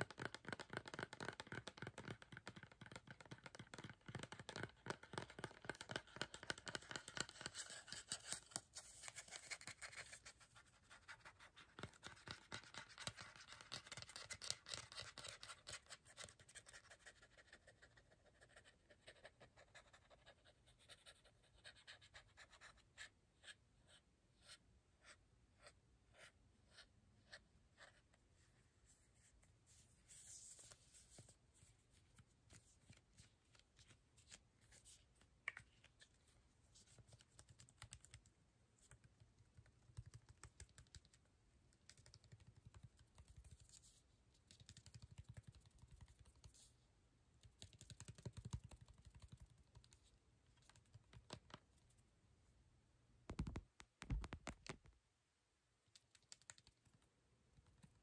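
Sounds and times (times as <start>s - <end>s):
fingernail tapping on plastic bottle: 53.3s - 54.8s.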